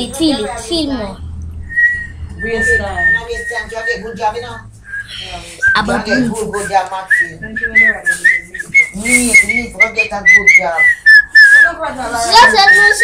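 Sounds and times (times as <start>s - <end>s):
person whistling high pitch: 1.7s - 4.0s, 4.8s - 13.0s
children's voices: 12.0s - 13.0s.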